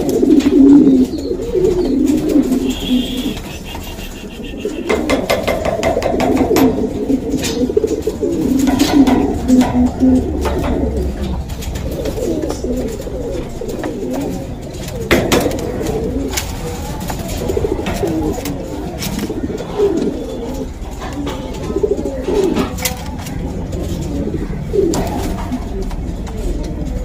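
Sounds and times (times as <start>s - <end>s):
pigeons cooing: 0.0s - 27.0s.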